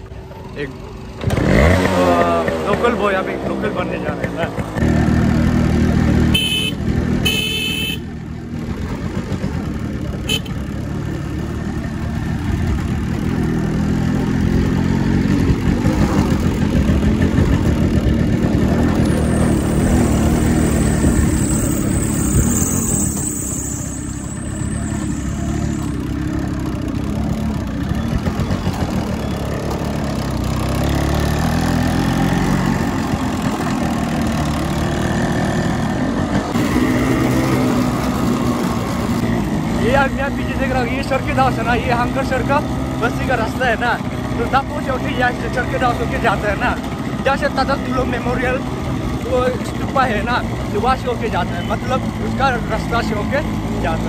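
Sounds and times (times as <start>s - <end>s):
motorcycle engine running: 0.0s - 54.0s
horn beeps: 6.3s - 8.2s, 10.2s - 10.6s, 19.0s - 26.3s.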